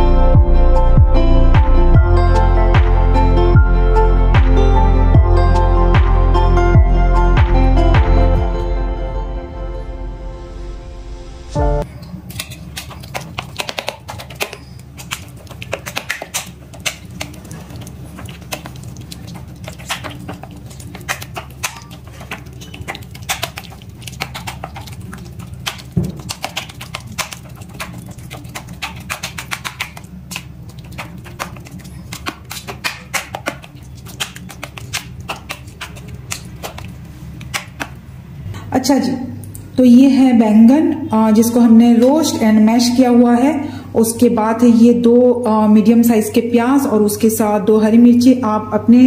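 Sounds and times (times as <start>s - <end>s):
steady low hum: 0.0s - 13.5s.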